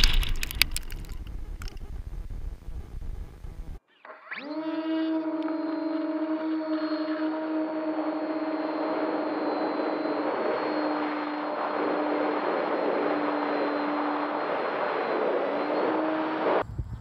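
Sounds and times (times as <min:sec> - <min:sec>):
propeller motor droning whine: 0:00.0 - 0:16.9
wind rush: 0:06.6 - 0:17.0.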